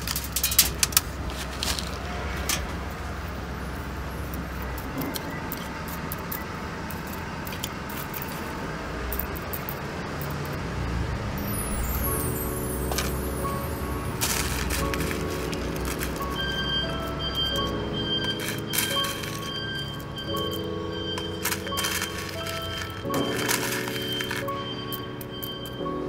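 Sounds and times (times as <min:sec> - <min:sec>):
pebbles clicking and rattling: 0:00.0 - 0:02.0, 0:04.3 - 0:08.5, 0:11.4 - 0:25.7.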